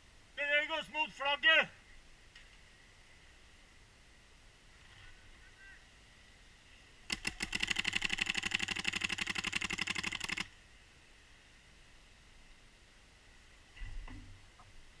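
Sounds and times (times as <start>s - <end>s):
paintball marker rapid firing: 7.1s - 10.5s.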